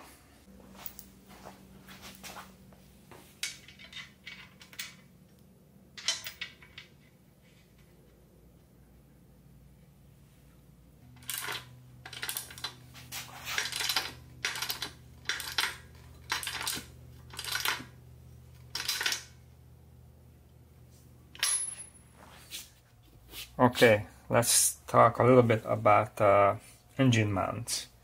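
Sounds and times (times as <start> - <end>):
faint steady hum: 0.0 - 28.0
small metal parts clinking: 3.4 - 5.4, 6.0 - 7.0, 11.2 - 12.8, 13.5 - 17.9, 18.6 - 19.4.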